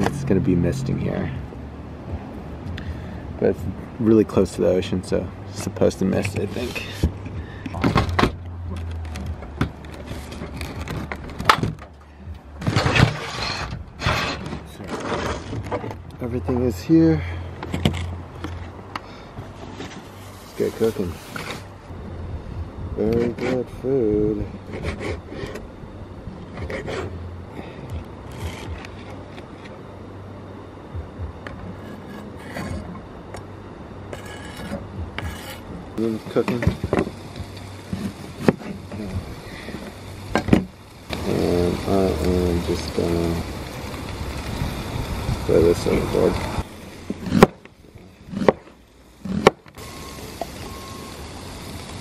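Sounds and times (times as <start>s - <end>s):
low hum: 0.0s - 52.0s
knife on plastic cutting board: 34.2s - 35.6s.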